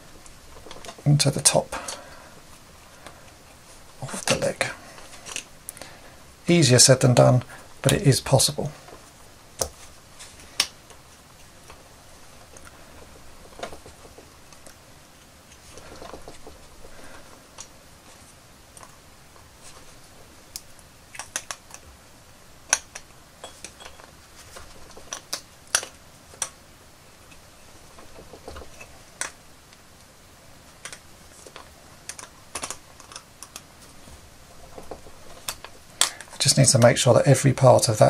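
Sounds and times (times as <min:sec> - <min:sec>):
plastic parts clicking and tapping: 0:22.7 - 0:26.6, 0:30.8 - 0:33.7.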